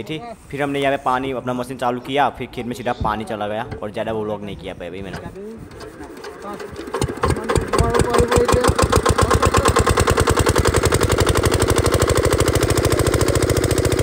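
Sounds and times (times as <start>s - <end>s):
single-cylinder engine running: 5.7s - 14.0s.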